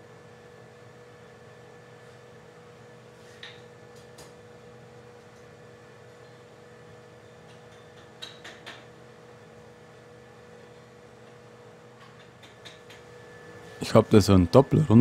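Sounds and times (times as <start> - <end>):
steady hum: 9.0 - 15.0.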